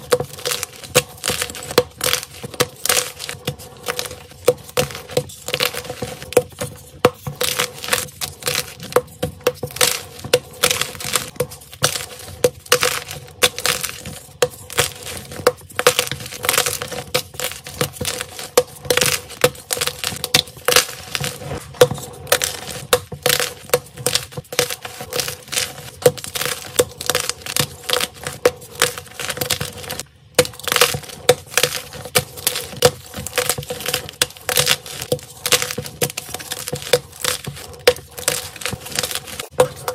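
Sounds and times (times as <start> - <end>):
chalk crunching and cracking: 0.0 - 39.9.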